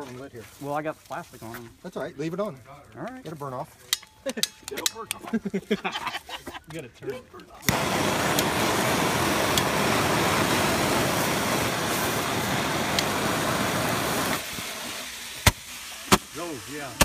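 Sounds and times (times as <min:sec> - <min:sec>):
fireworks fizzing hiss: 0:07.6 - 0:17.0
firework bang: 0:15.4 - 0:16.3.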